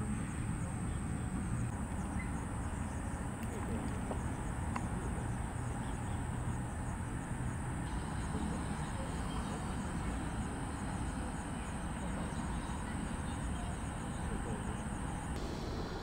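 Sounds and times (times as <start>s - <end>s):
insects trilling: 0.0s - 16.0s
low steady rumble: 0.0s - 16.0s
faint chirps: 0.1s - 6.9s, 7.8s - 16.0s.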